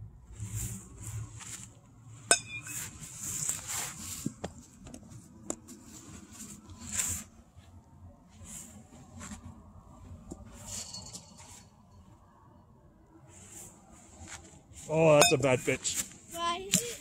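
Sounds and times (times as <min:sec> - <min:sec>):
rustling: 0:00.4 - 0:12.2
metal bat hitting ball: 0:02.3 - 0:02.8.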